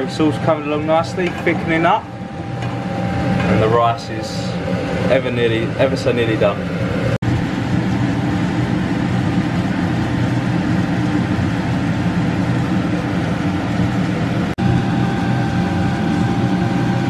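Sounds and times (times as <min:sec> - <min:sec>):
kitchen cooking noise: 0:00.0 - 0:14.5.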